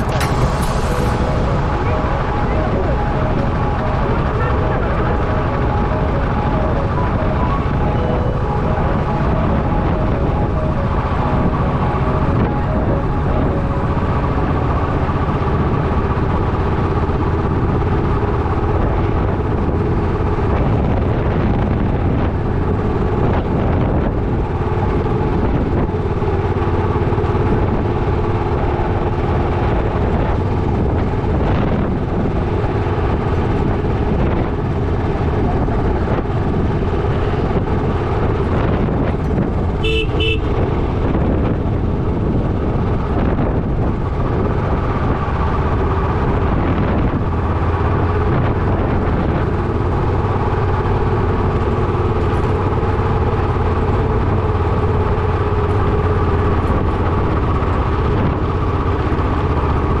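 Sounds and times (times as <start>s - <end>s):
road noise rumble: 0.0s - 60.0s
vehicle horn toots: 39.8s - 41.0s.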